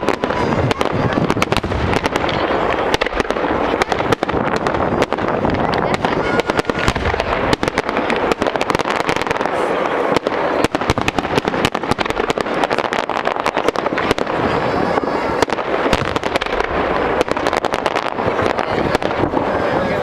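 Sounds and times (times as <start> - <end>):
fireworks bangs and crackles: 0.0 - 20.0.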